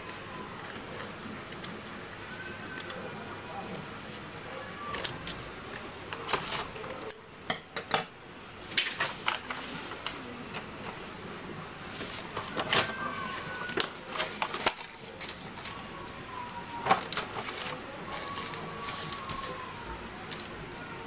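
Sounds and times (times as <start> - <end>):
paper rustling: 4.9 - 7.0, 8.7 - 19.7, 20.3 - 20.6
paper sheets sliding: 8.8 - 15.8, 16.8 - 19.6.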